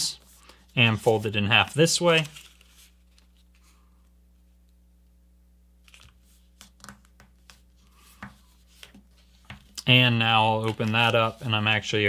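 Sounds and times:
low steady hum: 0.0s - 12.0s
paper folding rustles and taps: 5.9s - 9.9s, 10.6s - 11.4s.

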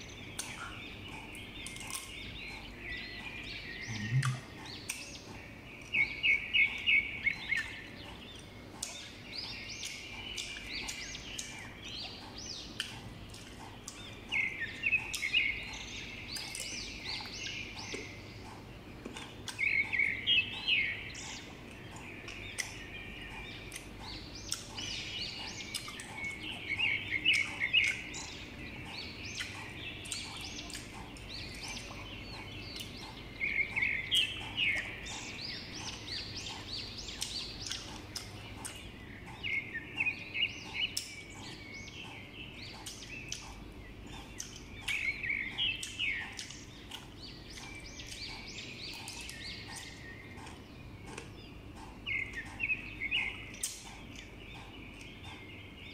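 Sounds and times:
close-up chewing: 0.0s - 55.9s.

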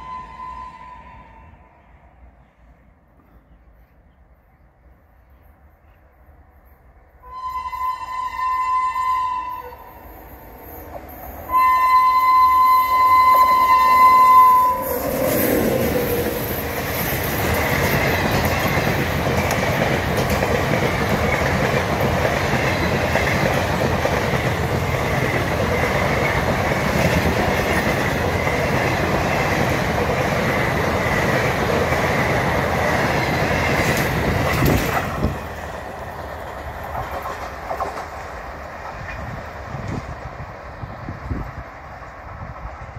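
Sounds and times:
locomotive horn blast: 7.2s - 10.1s, 11.5s - 15.8s
train wheels on rails: 9.6s - 42.9s.

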